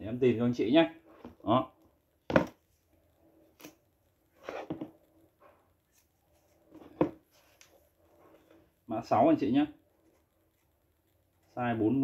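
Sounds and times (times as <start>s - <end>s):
shoe knocking on table: 2.3s - 2.6s, 7.0s - 7.2s.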